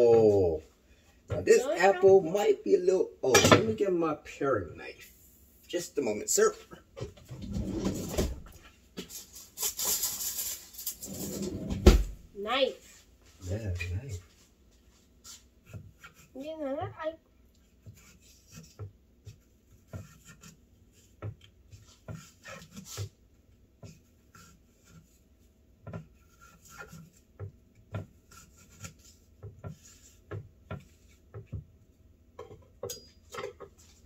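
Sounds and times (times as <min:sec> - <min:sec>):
knife tapping and scraping on board: 0:17.8 - 0:23.1, 0:25.8 - 0:31.6.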